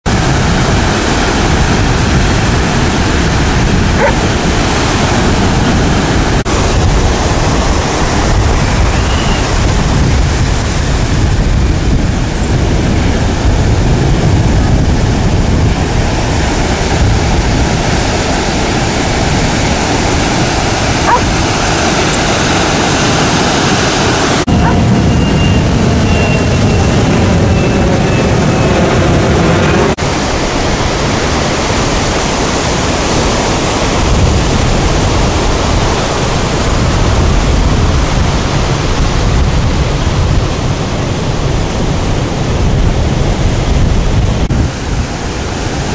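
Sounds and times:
ocean surf rushing: 0:00.0 - 0:45.9
dog yips and whines: 0:04.0 - 0:04.2, 0:21.0 - 0:21.3, 0:24.6 - 0:26.4.

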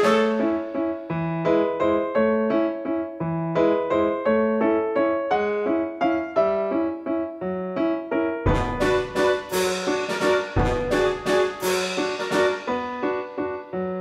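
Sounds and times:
light piano tune with bass: 0:00.0 - 0:14.0.

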